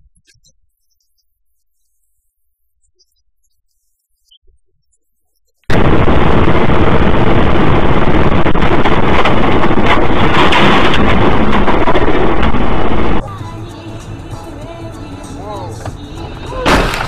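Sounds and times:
wind and road noise: 0:05.7 - 0:13.2.

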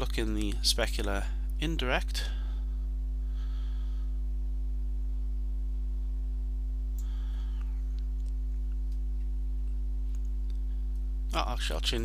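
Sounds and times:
low electrical mains hum: 0:00.0 - 0:12.0
faint breaths: 0:02.2 - 0:04.4, 0:07.0 - 0:08.0.

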